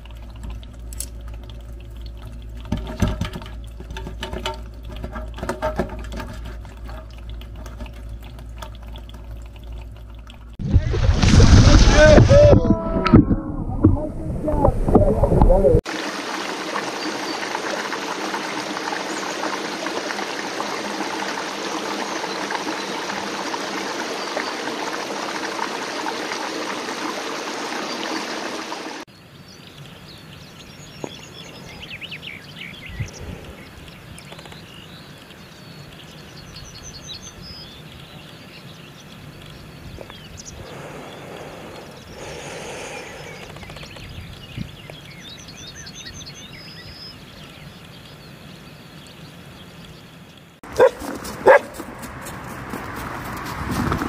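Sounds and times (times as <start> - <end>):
stream rushing and babbling: 0.0 - 44.0
small birds trilling: 27.8 - 51.6.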